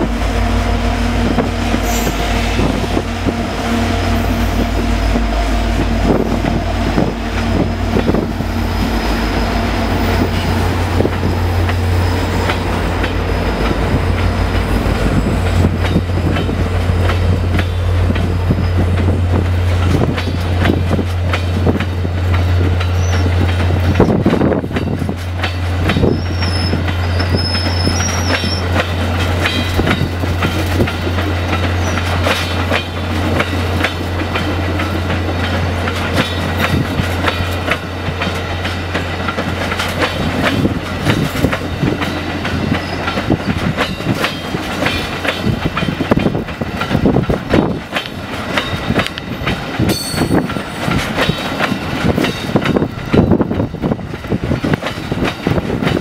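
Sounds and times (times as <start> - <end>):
diesel locomotive engine droning: 0.0 - 56.0
train wheels clacking on rails: 0.0 - 56.0
high wheel squeals: 11.3 - 14.5, 22.9 - 23.4, 26.0 - 28.8.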